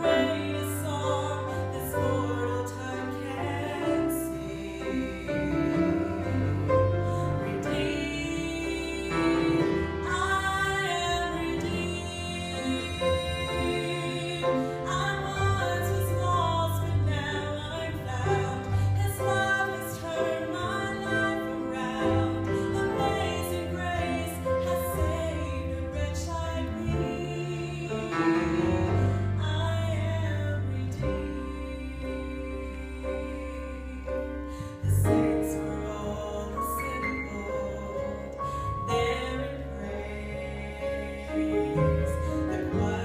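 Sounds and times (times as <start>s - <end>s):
acoustic guitar: 0.0s - 39.8s
piano: 0.0s - 43.0s
woman singing gospel song: 0.0s - 43.0s.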